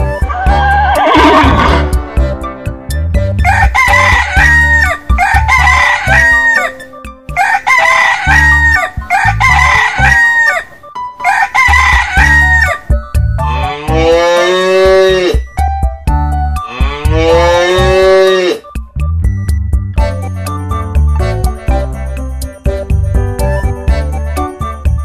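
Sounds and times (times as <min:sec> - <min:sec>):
children's music with bass beat: 0:00.0 - 0:10.4, 0:11.6 - 0:25.0
cow mooing: 0:00.4 - 0:02.0, 0:13.4 - 0:15.4, 0:16.6 - 0:18.7
rooster crowing: 0:03.4 - 0:06.8, 0:07.4 - 0:12.9.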